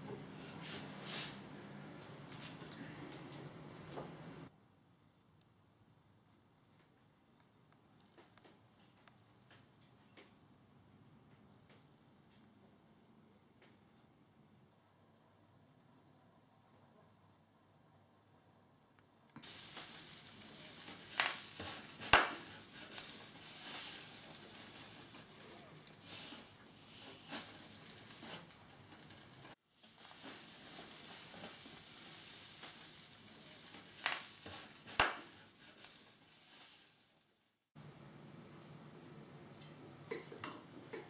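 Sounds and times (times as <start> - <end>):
steam hissing from heated wood: 0.6 - 1.4, 19.4 - 37.6.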